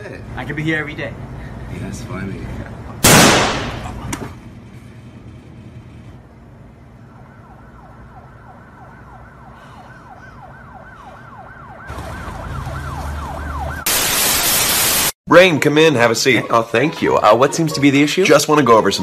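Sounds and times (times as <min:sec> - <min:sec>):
street noise rumble and hiss: 0:00.0 - 0:19.0
emergency siren sweeping: 0:06.8 - 0:15.1.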